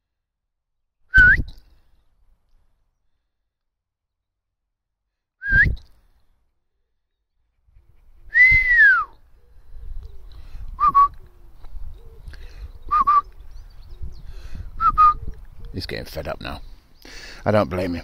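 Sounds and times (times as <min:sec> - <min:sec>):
person whistling commands: 0:05.4 - 0:05.8, 0:08.3 - 0:09.2, 0:12.9 - 0:13.2, 0:14.8 - 0:15.2
wind rumbling on microphone: 0:07.7 - 0:15.8.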